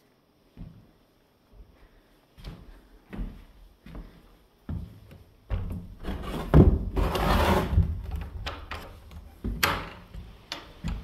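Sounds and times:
rubbing scrape on wood: 6.0 - 7.9.

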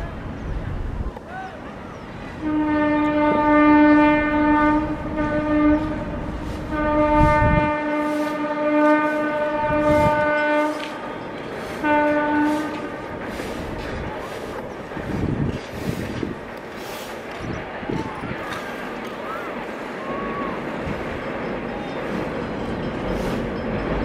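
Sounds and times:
train air horn blasts: 2.4 - 13.8.

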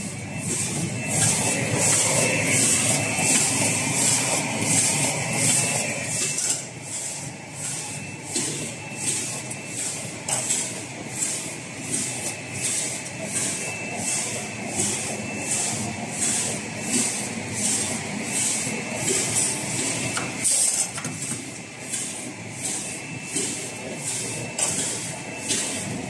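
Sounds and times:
thin high whine: 0.0 - 6.8.

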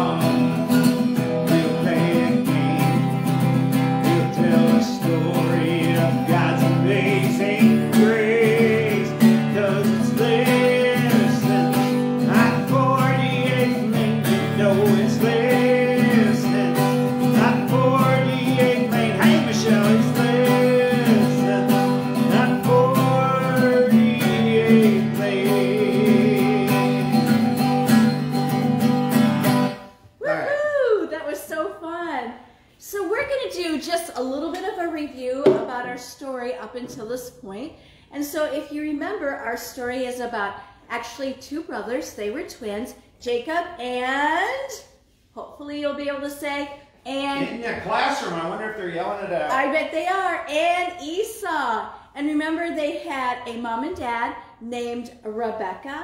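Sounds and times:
man and woman singing: 0.0 - 27.9, 47.3 - 48.2
acoustic guitar strumming: 0.0 - 30.1.

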